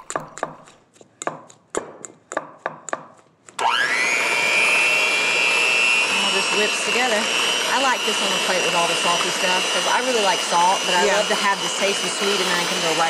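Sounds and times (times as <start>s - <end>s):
milk glugging from glass bottle: 0.0s - 0.8s
electric hand mixer whining: 3.6s - 13.0s.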